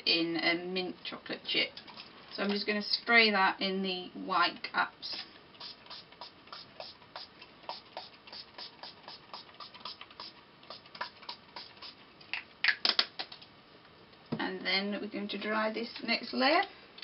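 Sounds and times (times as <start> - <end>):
spray bottle hisses: 5.6 - 12.0.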